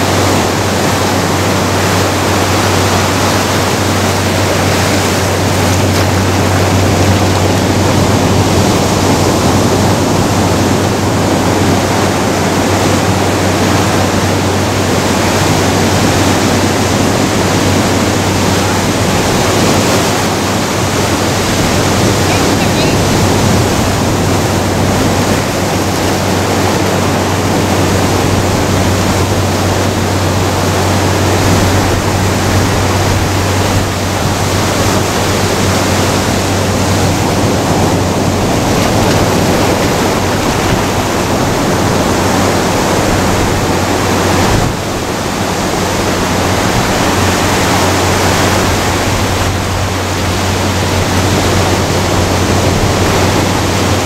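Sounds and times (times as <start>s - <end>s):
ocean surf breaking: 0.0s - 54.0s.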